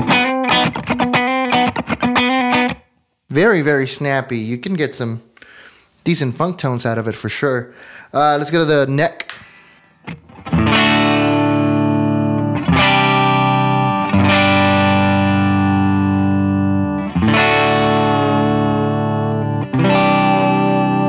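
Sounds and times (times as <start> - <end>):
clean electric guitar chords: 0.0 - 2.9, 10.1 - 21.0.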